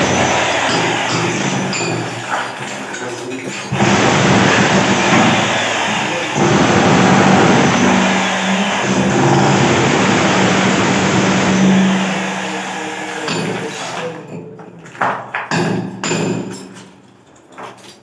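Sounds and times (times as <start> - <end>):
demolition hammer chipping tiles: 0.0 - 16.8.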